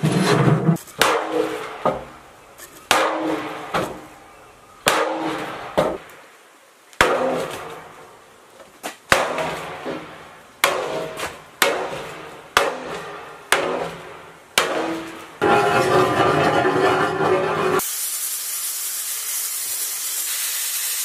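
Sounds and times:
hammer striking steel plate: 9.1 - 17.1
sandblasting hiss: 17.8 - 21.0.

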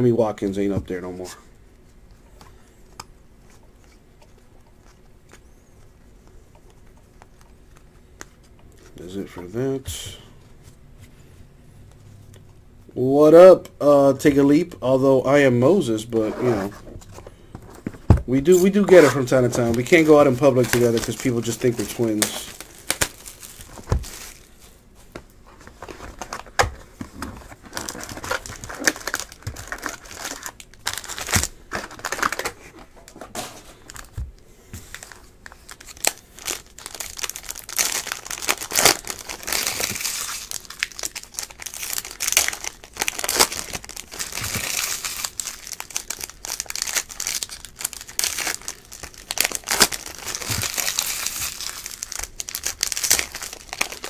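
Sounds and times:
foil wrappers crinkling: 18.3 - 24.7, 27.4 - 34.2, 34.8 - 54.0.

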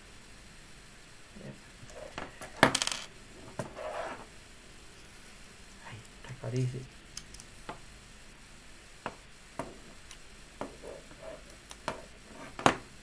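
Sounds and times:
small parts clicking on tabletop: 2.6 - 3.1, 7.1 - 7.5.

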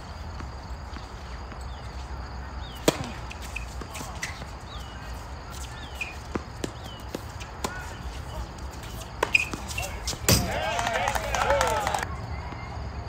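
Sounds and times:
tennis ball bouncing: 2.6 - 10.8
racket hitting tennis ball: 2.7 - 10.9
short high squeaks: 5.8 - 6.3, 8.8 - 10.4.

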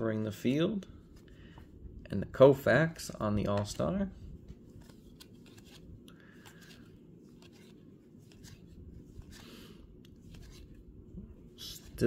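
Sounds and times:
low steady hum: 0.0 - 12.0
cards sliding: 4.4 - 10.9.

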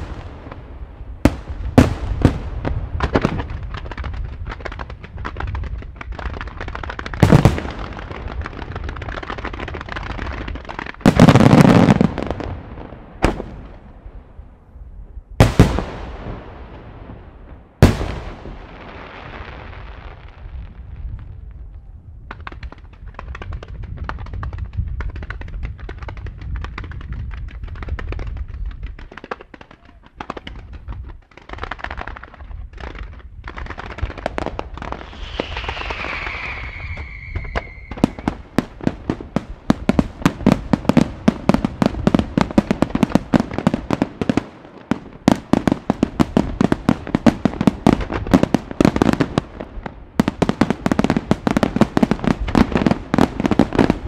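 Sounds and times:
firework crackling: 0.0 - 13.8, 22.4 - 54.0
rapid firework bangs: 0.0 - 13.8, 15.4 - 17.2, 22.3 - 54.0
firework booms: 0.0 - 14.6, 15.4 - 54.0
firework hissing: 34.9 - 38.3
descending firework whistle: 34.9 - 38.5.

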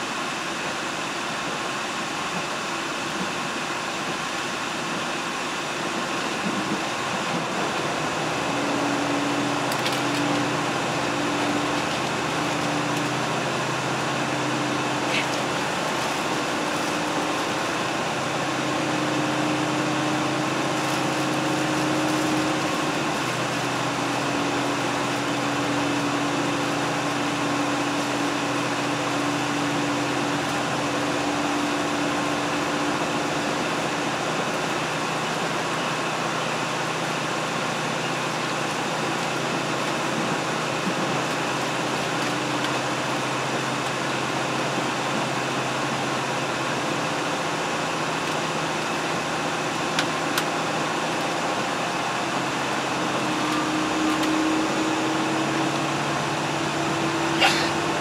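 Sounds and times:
diesel train engine hum: 0.0 - 58.0
train running noise: 0.0 - 58.0.

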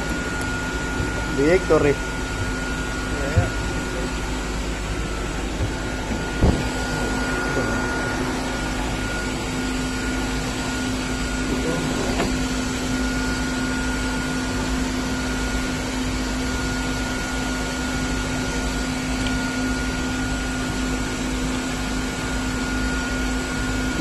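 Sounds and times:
machine hum and hiss: 0.0 - 24.0.

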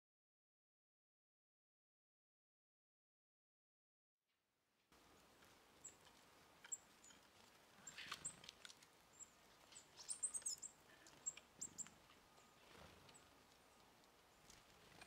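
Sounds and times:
small birds chirping: 5.0 - 15.0.

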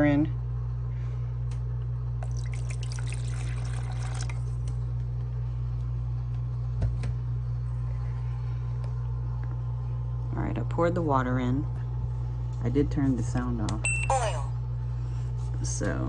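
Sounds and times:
steady low hum: 0.0 - 16.0
water splashing into a cup: 2.2 - 4.6.

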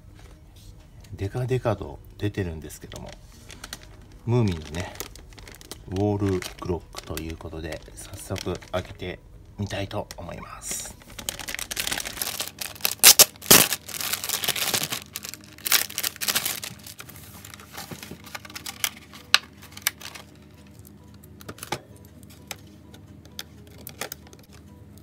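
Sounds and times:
plastic packaging crinkling: 2.7 - 9.2, 9.8 - 20.5.

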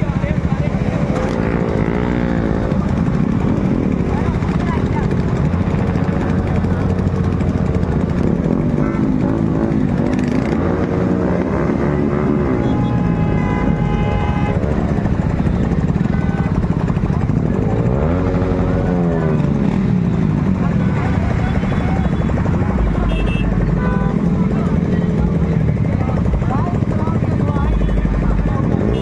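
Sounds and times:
motorcycle engines revving: 0.0 - 29.0
horn sounding: 11.8 - 15.0.

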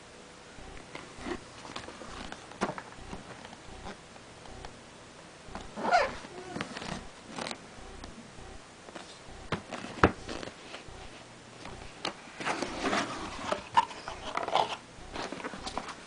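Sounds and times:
cardboard and foam rustling: 1.0 - 3.5, 11.8 - 16.0.

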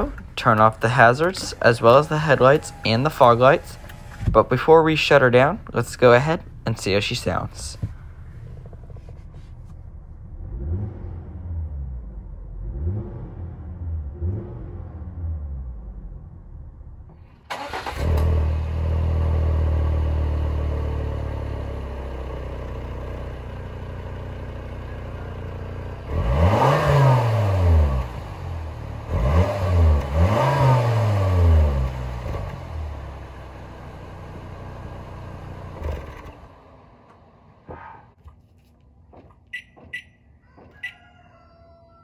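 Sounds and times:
car engine exhaust idling and revving: 0.0 - 38.2.

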